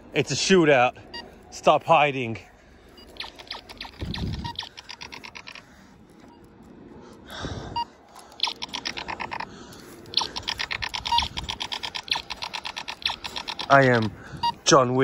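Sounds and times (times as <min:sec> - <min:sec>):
toy laser gun shot pulses: 0:03.2 - 0:05.5.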